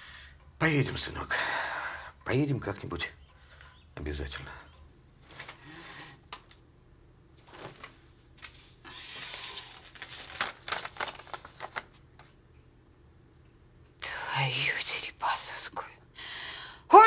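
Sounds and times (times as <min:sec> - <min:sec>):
clothes rustling: 0:05.2 - 0:06.6, 0:07.3 - 0:12.4
paper crinkling: 0:05.2 - 0:06.6, 0:07.4 - 0:12.4.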